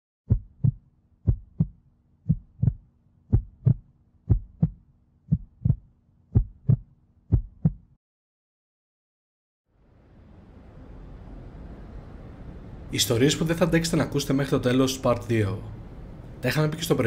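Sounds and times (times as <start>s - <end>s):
heartbeat double thump: 0.3s - 8.0s
faint low hum: 9.7s - 17.0s.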